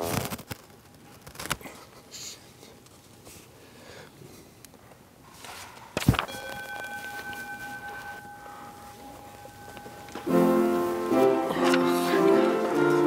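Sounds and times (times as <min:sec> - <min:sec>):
paper rustling: 0:00.0 - 0:01.8, 0:05.4 - 0:08.1, 0:09.4 - 0:13.0
held musical note: 0:06.4 - 0:13.0.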